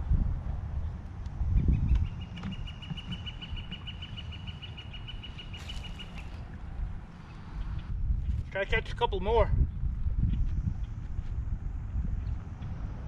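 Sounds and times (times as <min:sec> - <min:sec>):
wind buffeting microphone: 0:00.0 - 0:13.0
bird trilling: 0:02.1 - 0:06.4.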